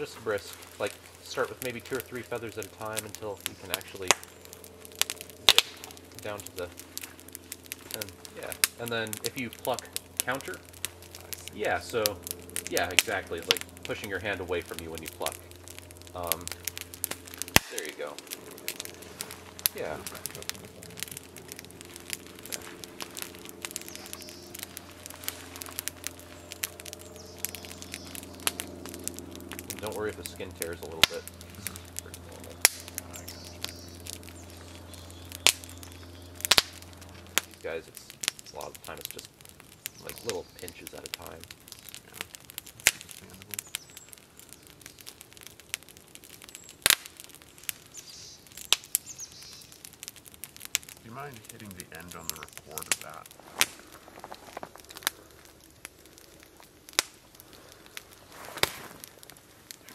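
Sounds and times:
feathers being plucked: 0.0 - 47.9, 50.3 - 59.9
campfire crackling and popping: 0.0 - 59.9
small bird chirping: 23.7 - 28.8, 31.3 - 37.0, 39.7 - 40.8, 43.5 - 45.2, 47.8 - 49.9.

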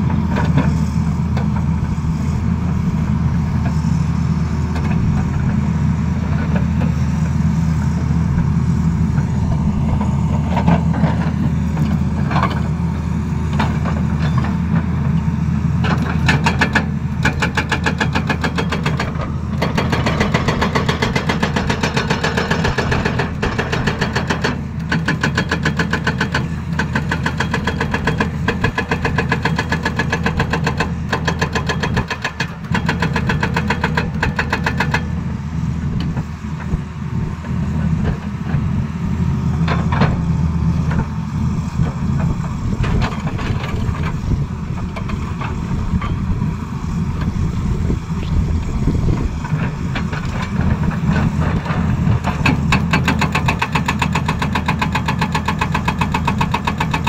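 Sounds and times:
diesel engine running: 0.0 - 57.0
hydraulic breaker hammering rock: 15.8 - 35.2, 48.8 - 57.0.

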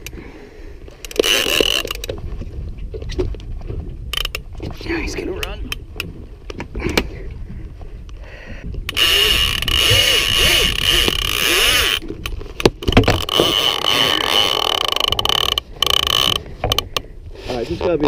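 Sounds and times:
fishing reel drag screaming: 8.9 - 12.0.

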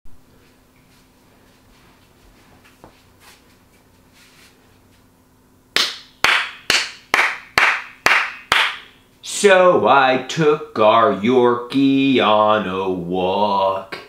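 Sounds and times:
faint room noise: 0.1 - 14.0
person clapping hands: 5.8 - 8.9.

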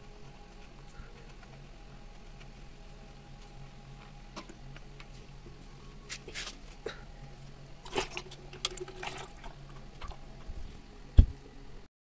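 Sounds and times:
faint clicks and scrapes: 0.0 - 6.8
low steady hum: 0.0 - 11.9.

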